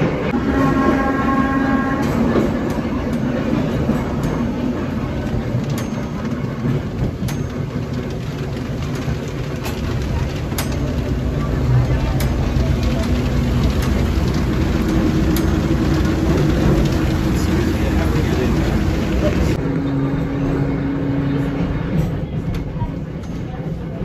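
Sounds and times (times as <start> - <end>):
wheels rumbling on track: 0.0 - 24.0
rail-joint clicks: 1.7 - 19.6.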